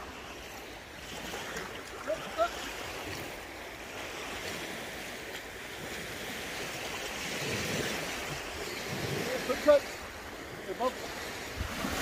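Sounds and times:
small waves lapping: 0:00.0 - 0:12.0
wind on microphone: 0:11.0 - 0:12.0.

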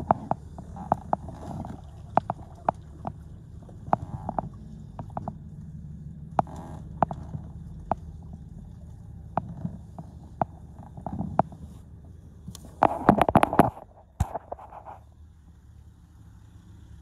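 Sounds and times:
sharp clicks and knocks: 0:00.0 - 0:05.6, 0:06.3 - 0:08.5, 0:09.3 - 0:11.8, 0:12.4 - 0:15.0
low steady hum: 0:00.0 - 0:17.0.

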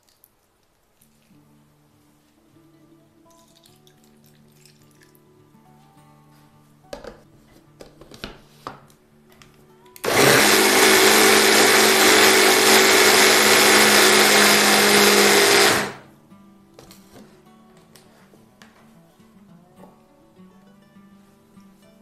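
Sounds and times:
hand blender motor whirring: 0:10.0 - 0:16.0.

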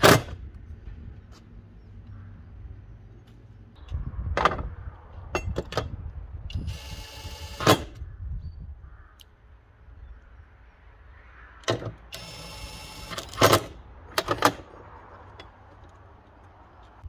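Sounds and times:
metal parts knocking and clanking: 0:13.0 - 0:16.0.

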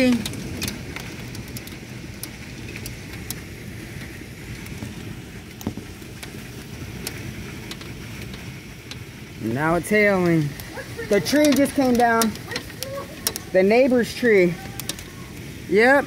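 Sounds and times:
rain and wind rushing: 0:00.0 - 0:16.0
raindrops ticking on glass: 0:00.0 - 0:16.0.

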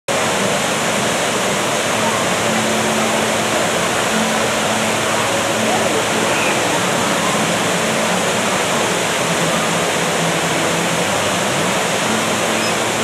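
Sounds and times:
waterfall rushing: 0:00.1 - 0:13.0.

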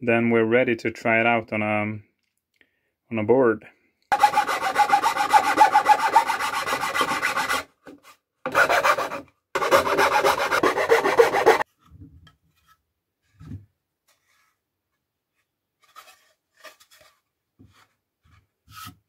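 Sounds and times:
metal file rasping on wood: 0:04.1 - 0:07.7, 0:08.5 - 0:11.6.

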